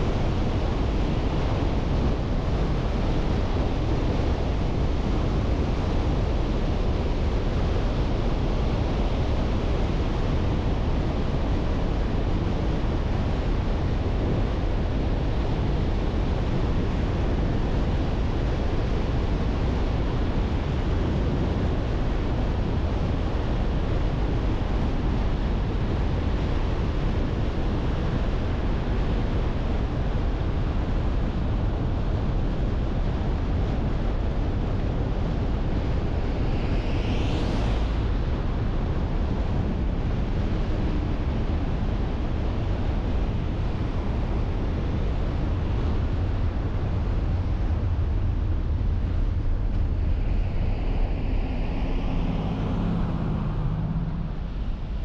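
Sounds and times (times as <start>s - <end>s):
wind noise: 0.0s - 55.0s.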